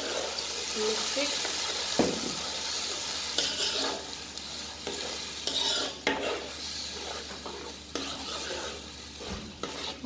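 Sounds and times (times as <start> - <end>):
paste sizzling in hot oil: 0.0 - 10.0
utensil scraping pot: 4.8 - 10.0.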